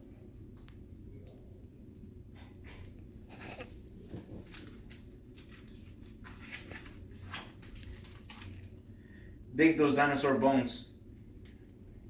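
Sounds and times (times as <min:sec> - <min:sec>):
book pages turning: 0:03.3 - 0:08.8.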